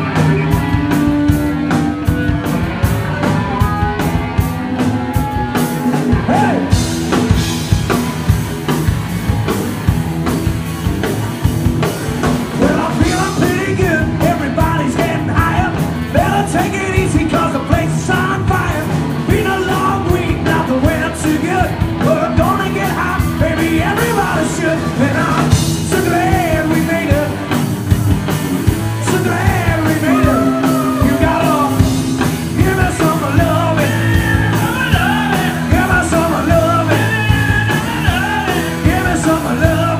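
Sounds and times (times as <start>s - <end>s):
bass guitar: 0.0s - 39.9s
drum kit: 0.0s - 39.9s
electric guitar: 0.0s - 39.9s
person singing: 29.2s - 39.9s.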